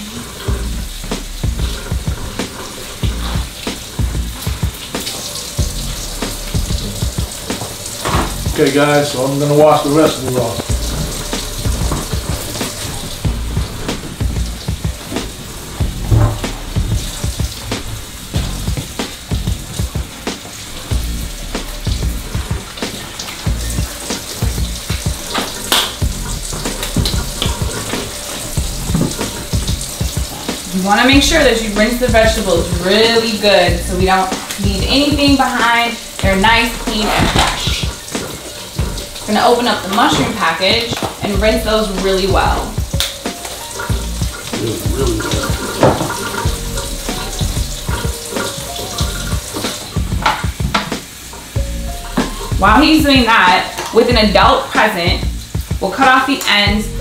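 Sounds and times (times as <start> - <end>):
water splashes: 0.0 - 57.0
tap running into metal sink: 6.2 - 21.0, 21.8 - 31.2, 36.1 - 41.2, 42.5 - 51.5.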